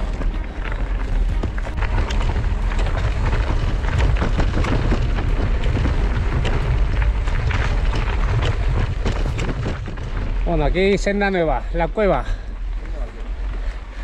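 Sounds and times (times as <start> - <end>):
bike rattling: 0.0 - 14.0
tyres crunching on stones: 0.0 - 14.0.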